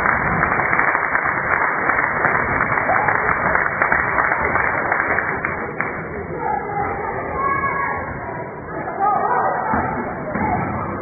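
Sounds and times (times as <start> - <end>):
crowd clapping: 0.0 - 6.2.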